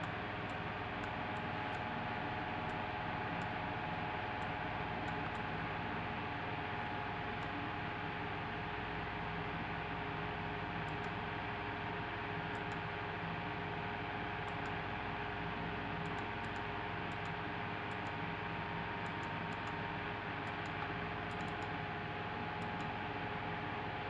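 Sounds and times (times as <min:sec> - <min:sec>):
room hum and hiss: 0:00.0 - 0:24.0
faint clicks: 0:20.4 - 0:21.7.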